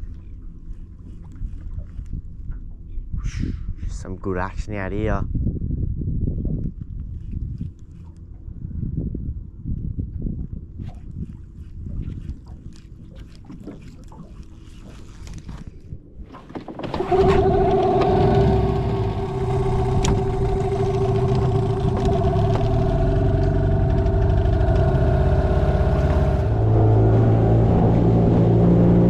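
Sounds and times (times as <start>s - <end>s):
outboard motor running: 12.2s - 29.0s.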